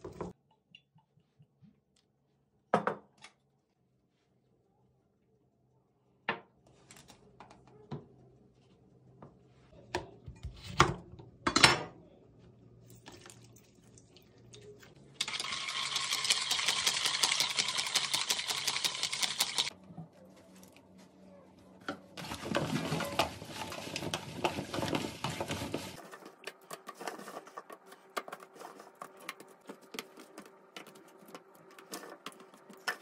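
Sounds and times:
wire whisk rattling in plastic bowl: 15.2s - 19.7s.

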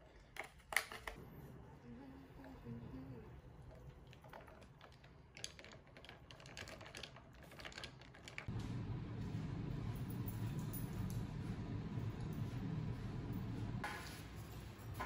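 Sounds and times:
low room noise rumble: 8.4s - 15.0s.

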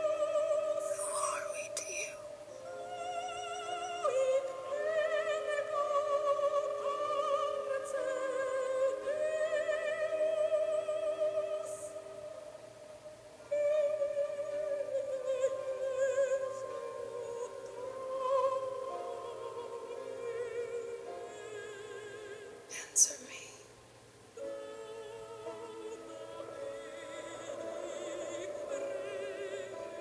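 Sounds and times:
operatic voice singing: 24.4s - 30.0s.

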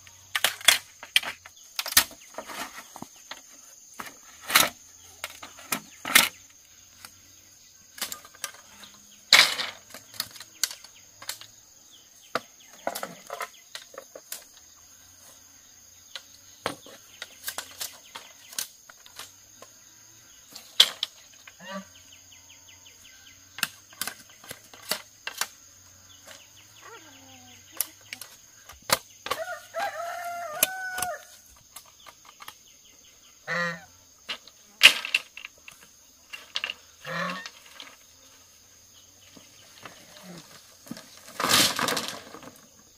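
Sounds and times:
bamboo poles knocking together: 0.3s - 6.4s, 9.3s - 11.5s, 20.5s - 21.6s, 23.5s - 25.6s, 27.7s - 29.6s, 30.6s - 32.6s, 34.3s - 38.0s, 39.3s - 42.8s.

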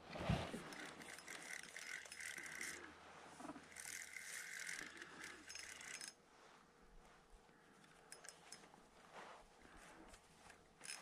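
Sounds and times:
fishing reel whirring: 0.6s - 2.9s, 3.6s - 6.2s.

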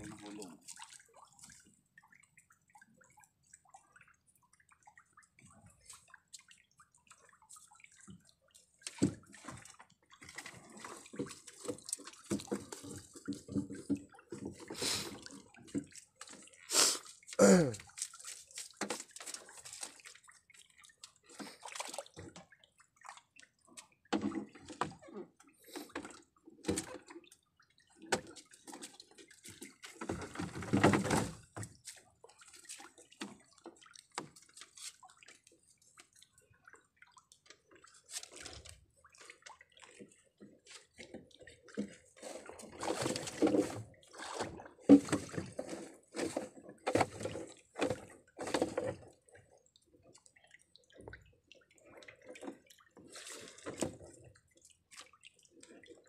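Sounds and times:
water dripping and splashing: 0.0s - 56.0s.

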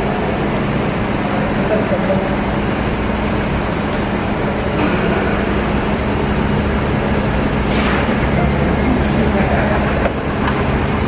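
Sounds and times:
higher-pitched machine noise: 0.0s - 11.0s
industrial machinery drone: 0.0s - 11.0s.

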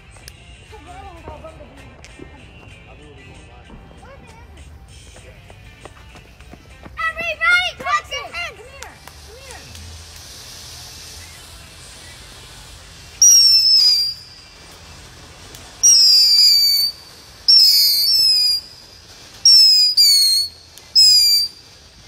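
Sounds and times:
firework spraying sparks: 0.0s - 22.0s
shrill firework whistles: 9.1s - 22.0s.

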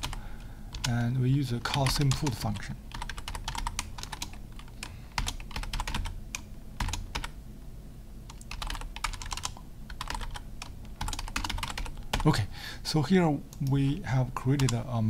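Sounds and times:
computer keyboard typing: 0.0s - 1.0s, 1.6s - 7.4s, 8.3s - 12.4s, 14.5s - 14.8s.

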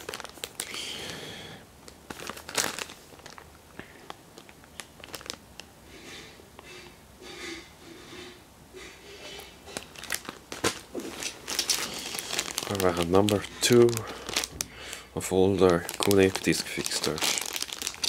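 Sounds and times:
plastic bag crinkling: 0.0s - 1.2s, 2.0s - 5.7s, 9.4s - 18.0s.

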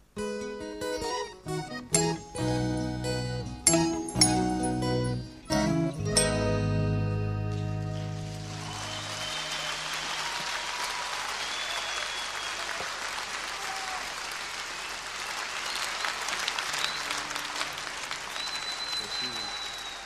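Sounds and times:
audience applauding: 7.8s - 20.0s
high whistles: 8.5s - 12.8s, 14.8s - 20.0s.

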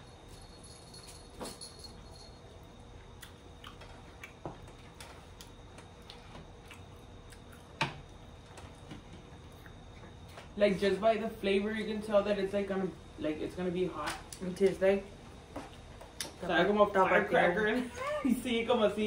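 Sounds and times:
people chewing: 2.6s - 10.5s.

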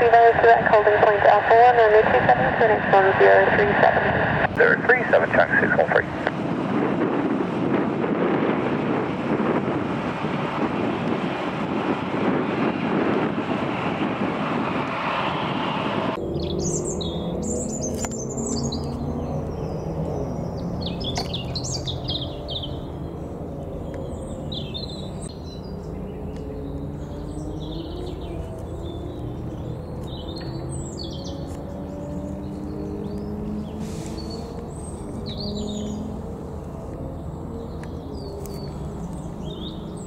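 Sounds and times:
loud rushing noise: 2.2s - 17.6s
small birds chirping: 16.3s - 40.0s.

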